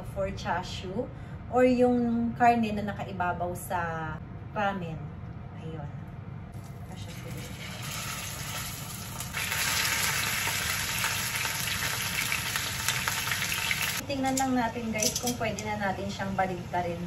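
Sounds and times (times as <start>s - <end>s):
meat sizzling in hot oil: 7.2s - 14.0s.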